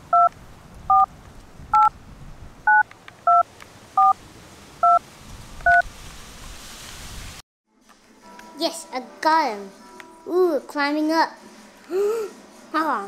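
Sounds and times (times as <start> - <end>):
two-tone keypad beeps: 2.7 - 3.4.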